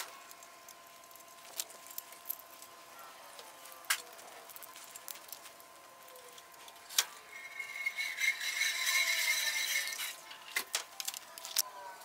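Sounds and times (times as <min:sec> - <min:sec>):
metallic rattling: 0:06.8 - 0:10.6.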